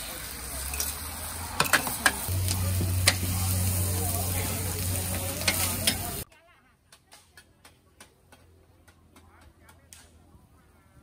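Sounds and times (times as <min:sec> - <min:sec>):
food sizzling on a wok: 0:00.0 - 0:06.3
metal spatulas clanging on pan: 0:00.6 - 0:01.0, 0:01.6 - 0:03.4, 0:05.0 - 0:06.2.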